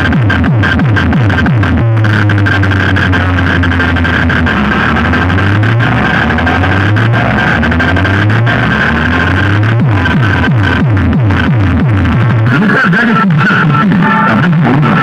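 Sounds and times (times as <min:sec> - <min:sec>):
deep bass note: 0:00.0 - 0:15.0
electronic dance music: 0:00.0 - 0:15.0
steady high tone: 0:00.0 - 0:15.0.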